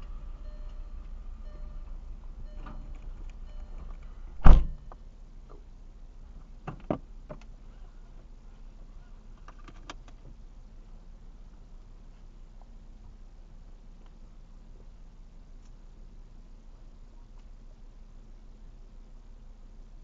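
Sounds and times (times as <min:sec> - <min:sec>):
low steady hum: 0:00.0 - 0:20.0
car door shutting: 0:03.7 - 0:04.9
light clicks and knocks in cabin: 0:06.4 - 0:10.4.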